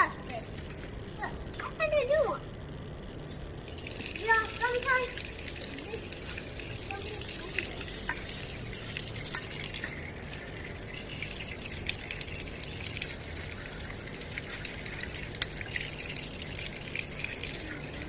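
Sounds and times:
water drips: 3.6 - 18.0.

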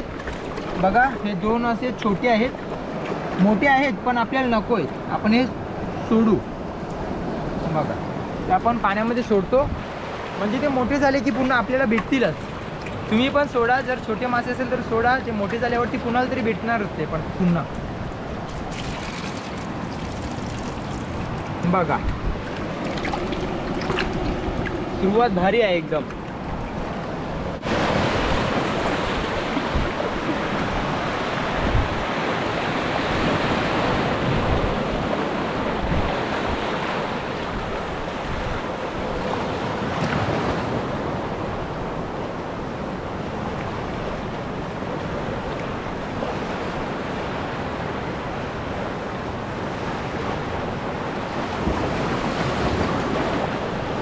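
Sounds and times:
small waves washing: 0.0 - 54.0
wind buffeting microphone: 17.2 - 54.0.

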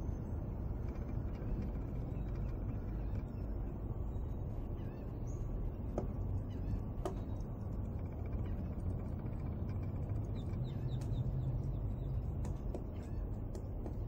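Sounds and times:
faint bird chirps: 0.0 - 14.0
woodpecker knocking on trunk: 5.9 - 6.2, 7.0 - 11.2, 12.2 - 14.0.

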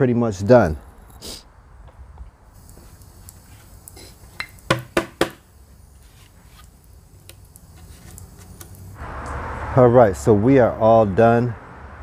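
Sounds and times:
wooden boards knocking: 4.7 - 5.4.

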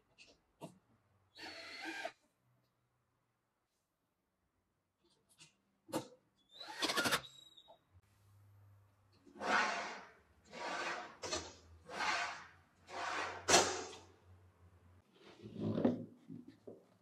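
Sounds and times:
frame sliding on rails: 9.3 - 14.1.

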